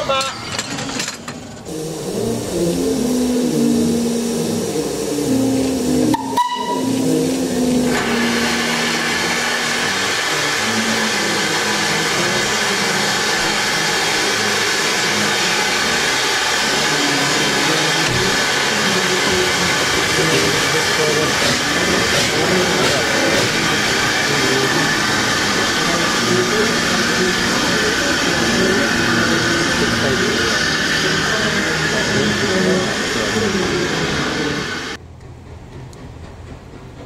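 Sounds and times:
loud hiss of escaping steam: 1.7 - 35.0
steam locomotive whistle toot: 6.0 - 10.6.

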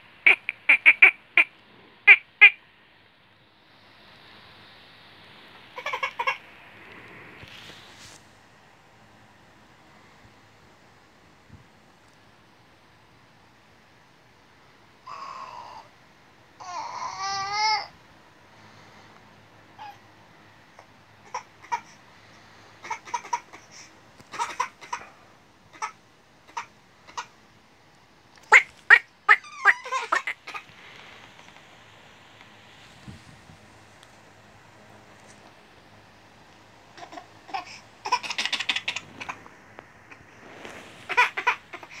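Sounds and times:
toddler giggling: 5.8 - 6.4, 29.3 - 30.7, 37.0 - 39.5, 41.1 - 42.0
toddler crying: 16.6 - 17.9.

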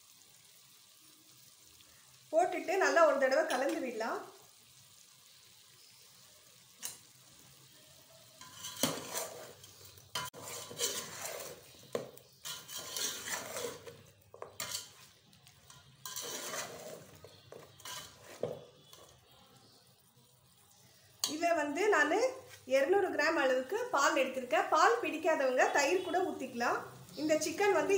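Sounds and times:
metal spatula scraping a pot: 8.2 - 19.8.

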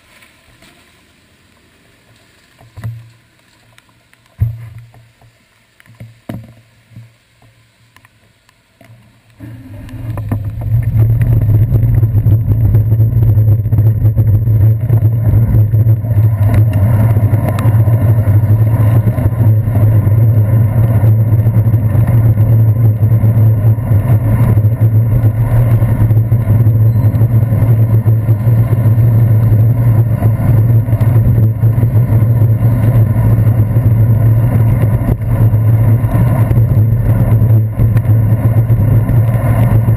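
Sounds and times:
bicycle rumbling on wet pavement: 0.0 - 39.9
wind noise: 9.4 - 39.9.

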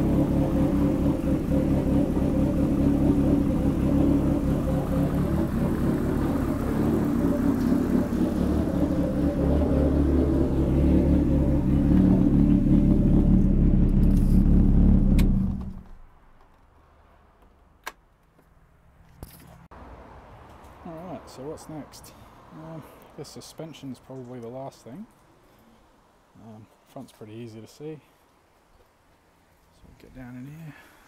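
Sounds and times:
car engine running: 0.0 - 16.0.

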